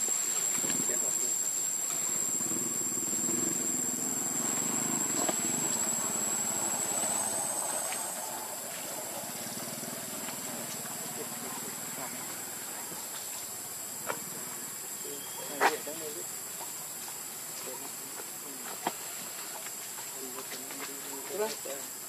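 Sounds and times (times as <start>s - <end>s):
high-pitched insect trill: 0.0s - 22.0s
low engine hum: 1.9s - 11.8s.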